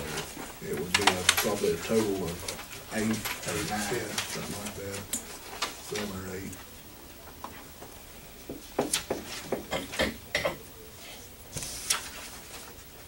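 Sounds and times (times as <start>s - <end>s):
paper rustling: 0.0s - 6.7s, 11.5s - 13.0s.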